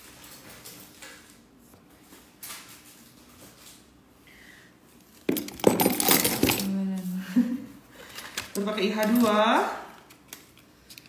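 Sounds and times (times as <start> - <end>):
makeup cases clattering: 5.3 - 6.7.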